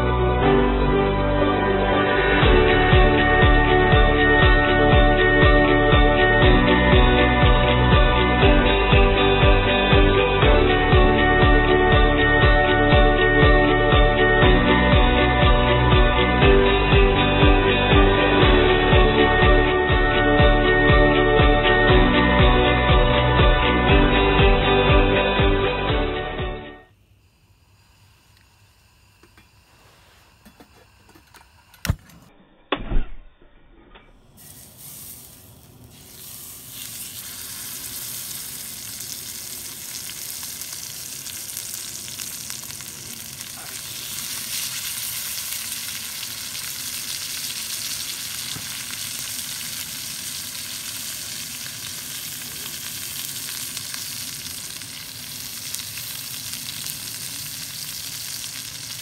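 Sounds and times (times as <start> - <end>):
steaks sizzling in skillet: 34.4 - 59.0.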